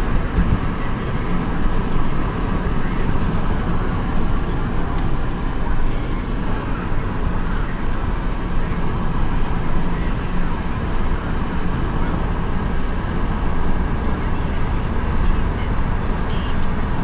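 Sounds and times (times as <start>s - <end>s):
wind noise: 0.0s - 5.6s
engine drone: 0.0s - 17.0s
tyre road noise: 0.0s - 17.0s.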